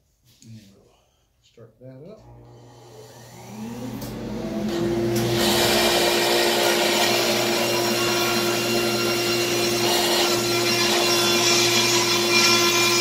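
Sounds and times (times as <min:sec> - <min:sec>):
table saw motor whining: 0:02.2 - 0:13.0
saw blade cutting wood: 0:04.6 - 0:13.0.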